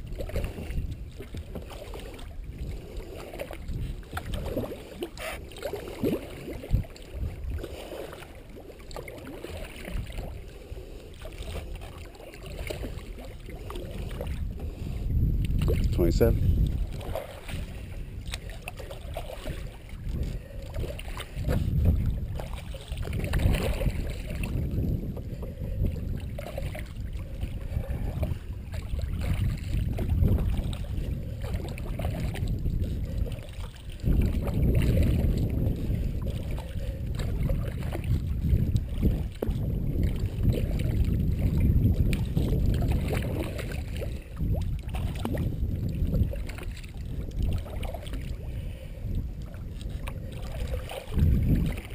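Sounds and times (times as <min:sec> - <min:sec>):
paddle splashing in water: 0:00.0 - 0:51.9.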